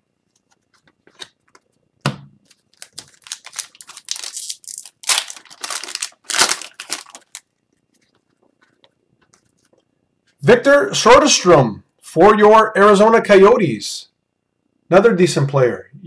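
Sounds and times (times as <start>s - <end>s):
card pack wrapper tearing: 2.4s - 8.1s.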